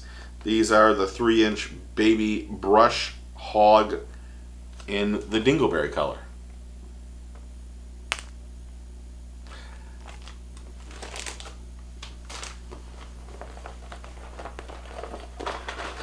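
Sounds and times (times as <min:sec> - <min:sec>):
steady low hum: 0:00.0 - 0:16.0
plastic packaging crinkling: 0:10.0 - 0:16.0.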